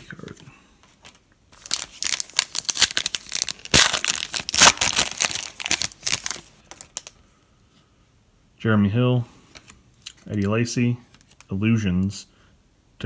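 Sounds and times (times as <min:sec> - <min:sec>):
plastic wrapper tearing and crinkling: 0:01.5 - 0:07.2.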